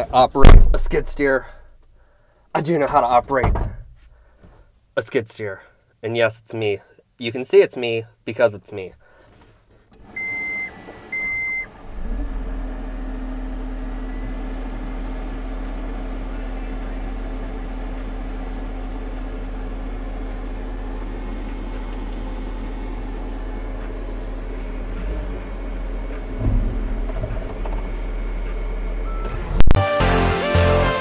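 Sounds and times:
keypad beeps: 10.2s - 11.7s
diesel engine idling: 11.3s - 29.6s.

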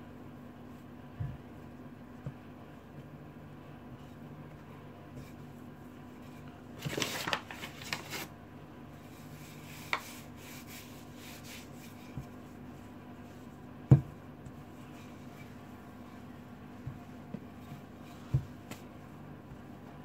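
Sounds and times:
rolling pin thumping on board: 13.8s - 14.6s.

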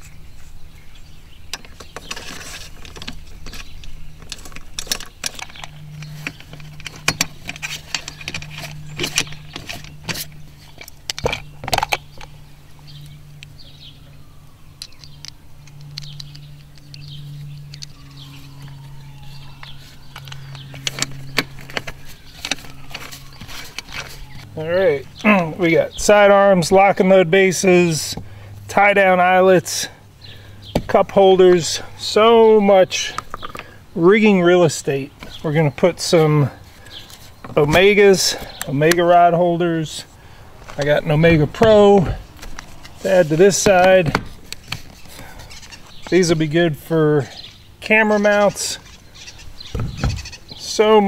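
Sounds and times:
steady low hum: 0.0s - 51.0s
plastic parts clicking and knocking: 1.5s - 12.3s.

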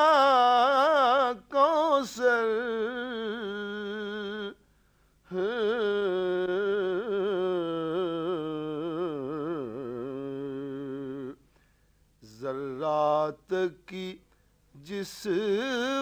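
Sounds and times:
man humming ornamented melody: 5.3s - 11.4s.

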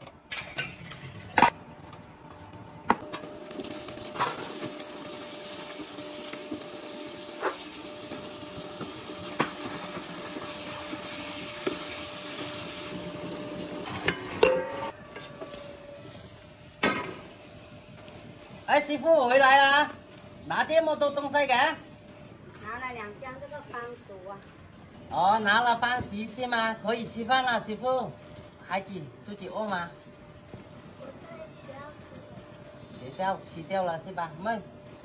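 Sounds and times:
induction cooker hum: 0.0s - 35.0s
vegetables and chicken sizzling: 3.0s - 24.4s.

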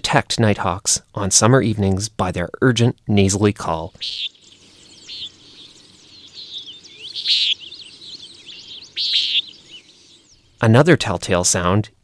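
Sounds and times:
nighthawk nasal peent call: 4.0s - 10.4s
faint chirps: 4.0s - 10.7s.

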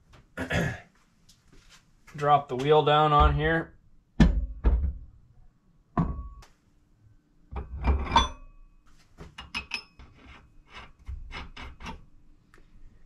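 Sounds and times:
metal clunk with ring: 6.0s - 6.5s.

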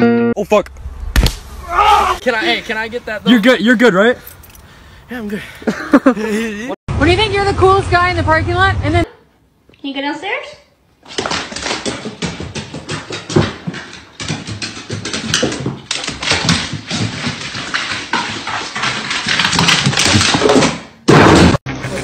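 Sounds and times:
dog claws clicking on stairs: 11.1s - 20.8s.

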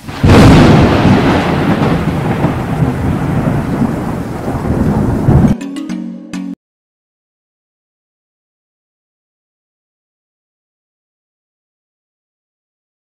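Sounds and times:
rain hiss: 0.0s - 5.5s
thunder crack and rumble: 0.0s - 5.6s.

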